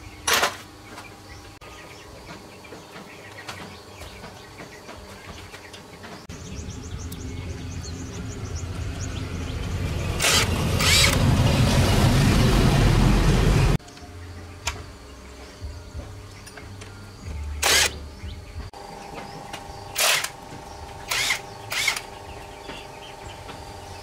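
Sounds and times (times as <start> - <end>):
cordless impact wrench running: 10.2 - 11.2, 17.6 - 18.0, 19.8 - 22.3
faint insects: 13.8 - 24.0.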